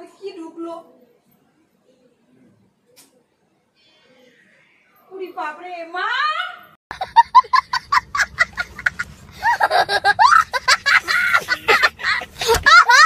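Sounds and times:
boy laughing: 6.9s - 13.0s.

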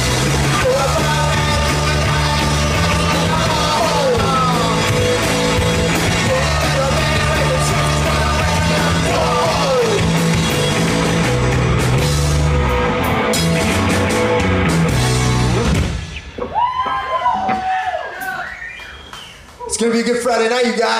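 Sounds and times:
distorted electric guitar: 0.0s - 16.5s
bass guitar: 0.0s - 17.9s
drum kit: 0.0s - 18.4s
person singing: 0.3s - 5.2s, 6.0s - 10.2s.

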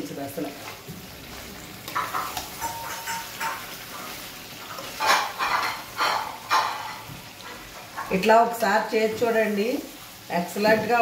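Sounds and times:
light sizzle: 0.0s - 11.0s
metal spatula scraping a pan: 1.4s - 8.2s.

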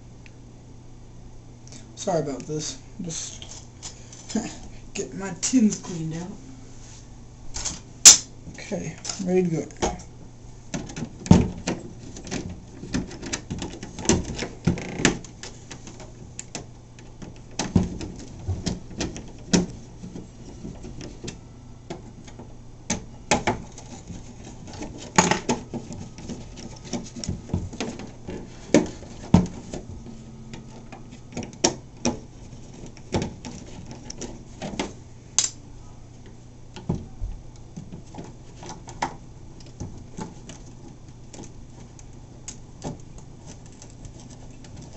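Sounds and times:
faint low hum: 0.0s - 44.9s.

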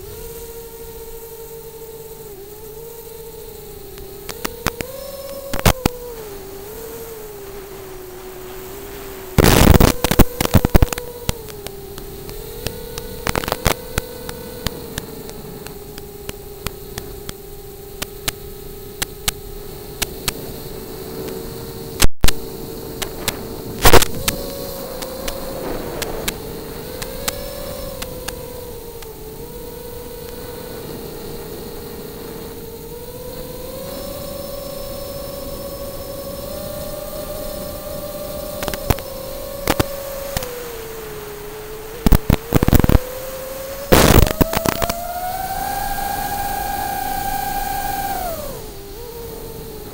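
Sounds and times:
drone motors whining: 0.0s - 49.9s
static hiss with hum: 0.0s - 49.9s
loud radio crackle: 3.8s - 32.6s, 33.4s - 48.8s
sharp clicks: 3.9s - 6.1s, 9.4s - 20.4s, 22.0s - 29.2s, 38.4s - 40.7s, 42.0s - 43.2s, 43.9s - 48.8s.

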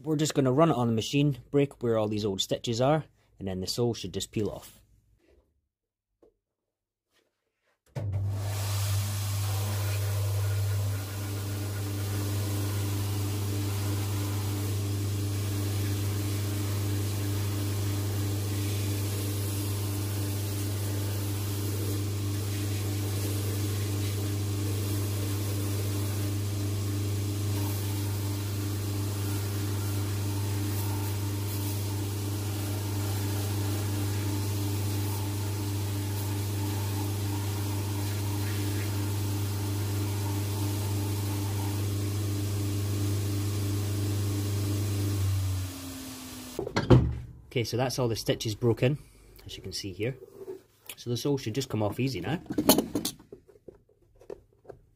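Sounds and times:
shoe finishing machine humming: 8.4s - 46.6s.

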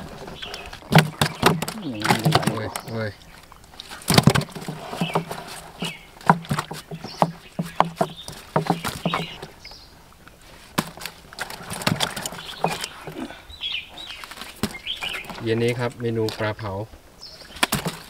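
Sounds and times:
fish splashing in water: 0.0s - 13.3s, 17.4s - 18.0s.

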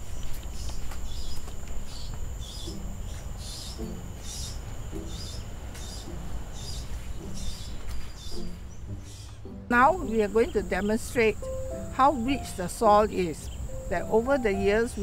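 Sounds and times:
footsteps crunching on dirt path: 0.0s - 9.2s
high insect buzz: 0.0s - 9.2s, 9.8s - 15.0s.

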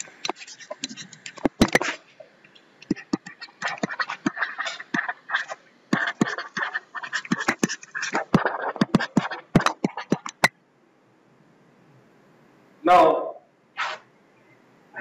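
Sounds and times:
stylus scratching and tapping on screen: 0.0s - 10.6s.

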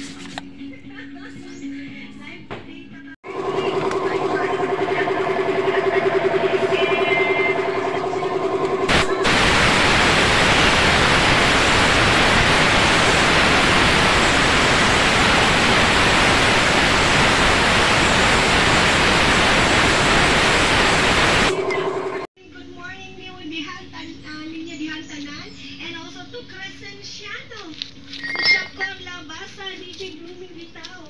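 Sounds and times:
steady hum: 3.3s - 22.3s
paint spray gun hissing: 6.3s - 21.6s.

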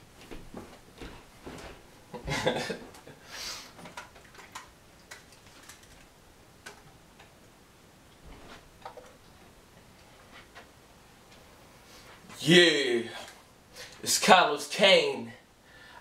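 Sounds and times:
rustle of person moving: 0.0s - 2.0s, 8.2s - 12.4s
short hiss: 3.3s - 3.8s.

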